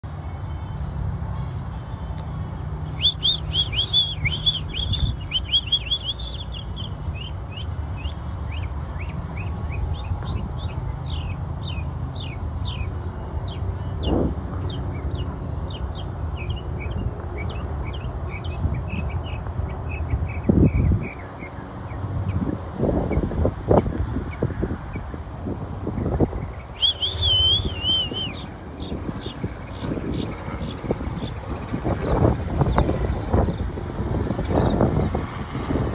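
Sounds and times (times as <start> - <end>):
mockingbird singing: 3.0 - 12.9, 26.2 - 33.6.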